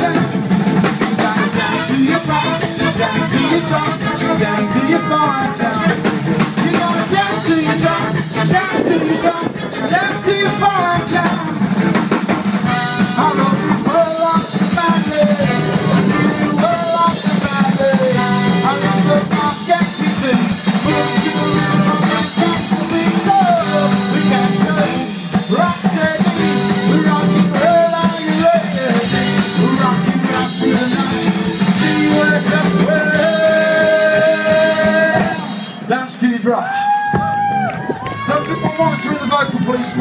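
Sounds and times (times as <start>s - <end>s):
drum kit: 0.0s - 40.0s
electric guitar and bass: 0.0s - 40.0s
saxophone and trumpet: 0.0s - 40.0s.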